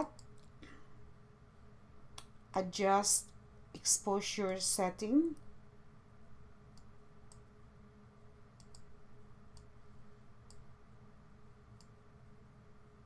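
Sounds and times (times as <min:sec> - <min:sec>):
computer mouse clicking: 0:00.0 - 0:00.6, 0:06.7 - 0:07.5, 0:08.6 - 0:08.9, 0:09.5 - 0:09.7, 0:10.4 - 0:10.7, 0:11.8 - 0:12.0
faint low hum: 0:00.0 - 0:13.0.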